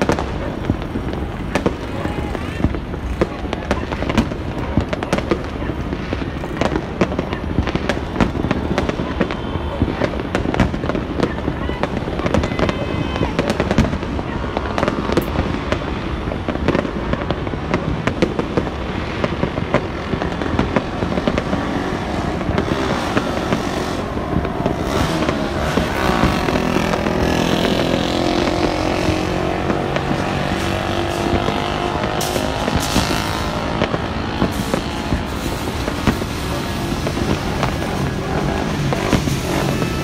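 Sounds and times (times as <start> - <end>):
fireworks crackling and popping: 0.0 - 40.0
motorcycle engine: 20.8 - 40.0.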